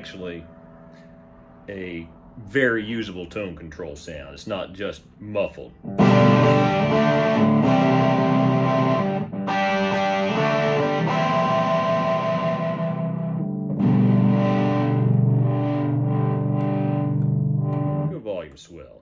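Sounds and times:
distorted electric guitar chords: 5.8s - 18.3s.

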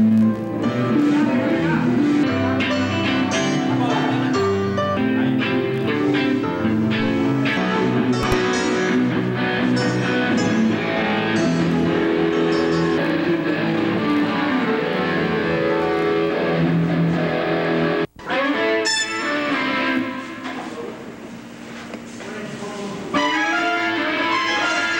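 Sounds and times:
electric guitar playing: 0.0s - 20.6s, 23.2s - 24.9s.

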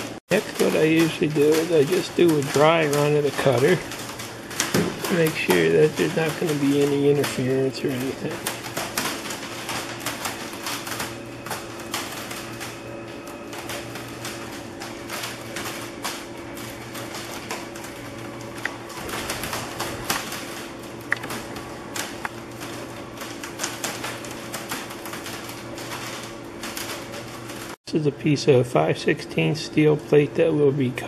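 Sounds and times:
motors humming: 0.0s - 31.0s
rapid irregular clicking: 0.1s - 27.8s.

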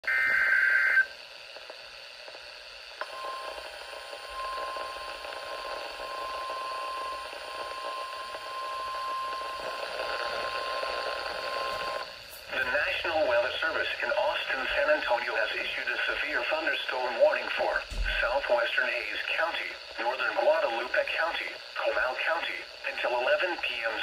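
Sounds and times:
steady high alarm tone: 0.0s - 1.1s, 3.0s - 13.4s
radio hiss: 0.0s - 24.0s.

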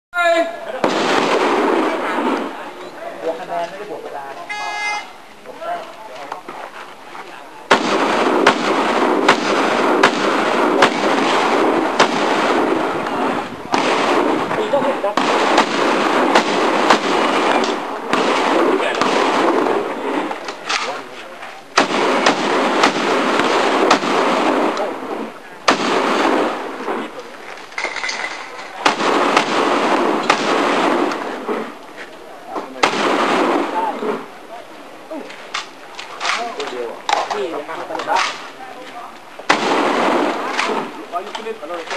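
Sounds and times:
shotgun shots with echo: 0.8s - 2.6s, 7.7s - 21.0s, 21.8s - 25.1s, 25.7s - 27.1s, 28.8s - 31.7s, 32.7s - 34.3s, 39.5s - 41.0s.

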